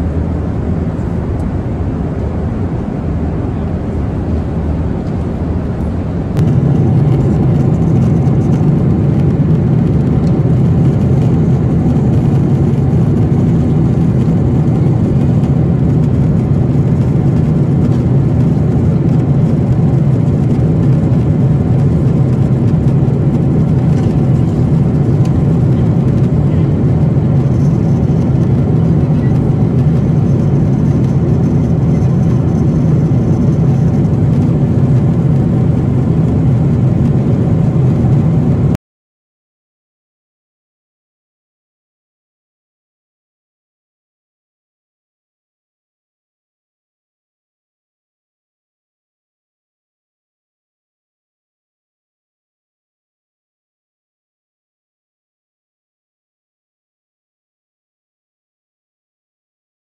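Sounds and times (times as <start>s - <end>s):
airplane cabin engine drone: 0.0s - 38.8s.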